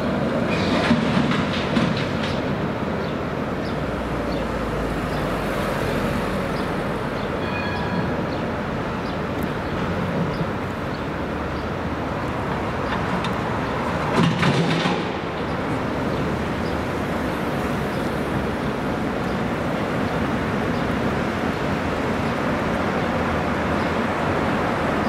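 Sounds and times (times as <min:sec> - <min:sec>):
tram wheels clicking over rail joints: 0:00.0 - 0:05.3, 0:08.9 - 0:25.0
city traffic noise: 0:00.0 - 0:25.0
brief high tone: 0:07.4 - 0:08.2.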